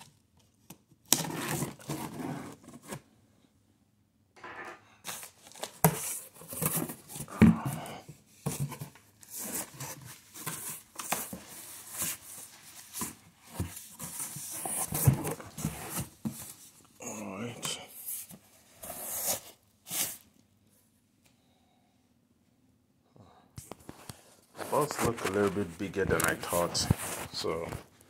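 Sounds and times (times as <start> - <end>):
packing tape tearing: 1.0 - 3.0.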